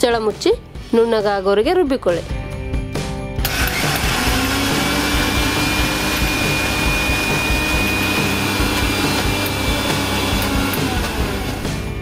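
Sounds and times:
mixer grinder motor whine: 3.4s - 12.0s.

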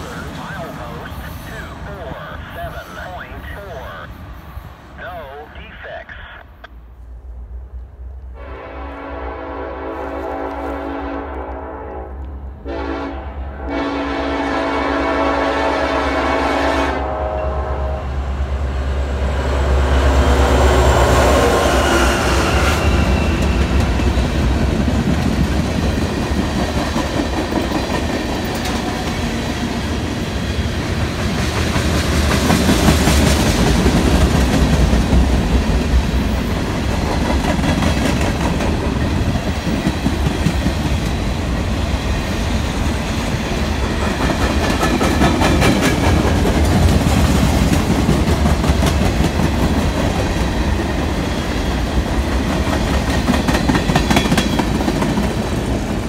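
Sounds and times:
train wheels rumbling on rail: 0.0s - 5.4s, 6.9s - 56.0s
locomotive horn blasts: 8.4s - 18.2s.

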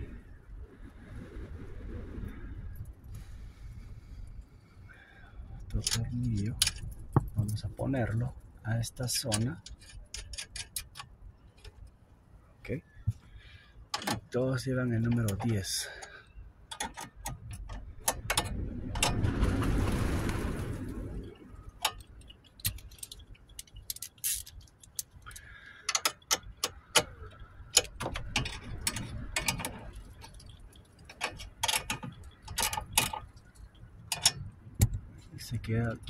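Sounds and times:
plastic connectors clicking: 21.8s - 35.1s.

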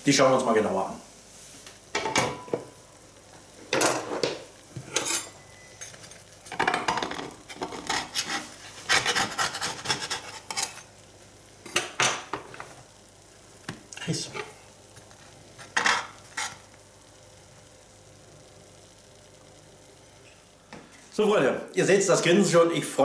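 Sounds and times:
metal spatula scraping baking tray: 7.5s - 10.9s.

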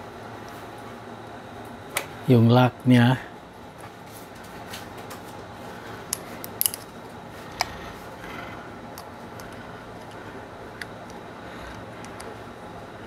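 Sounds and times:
faint steady hum: 0.0s - 13.0s
sharp metallic clicks of pistol parts: 6.1s - 6.8s.

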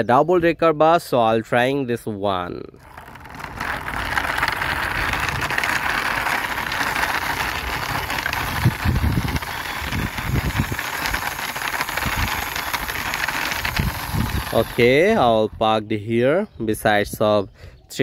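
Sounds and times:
toy wheels rolling on concrete: 2.4s - 16.2s
low bumps: 2.7s - 15.8s.

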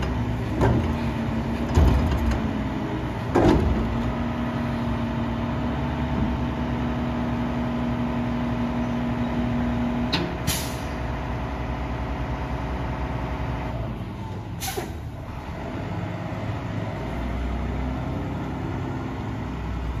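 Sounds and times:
garbage truck engine running: 0.0s - 20.0s
air brake hiss: 10.5s - 11.0s, 14.6s - 15.0s.

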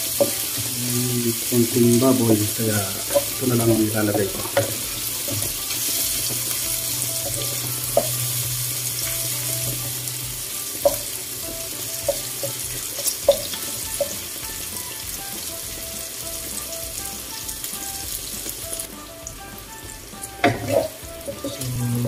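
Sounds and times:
meat sizzling in a wok: 0.0s - 22.0s
wooden spatula knocking on pan: 3.0s - 8.3s, 10.8s - 16.7s, 20.4s - 21.4s.

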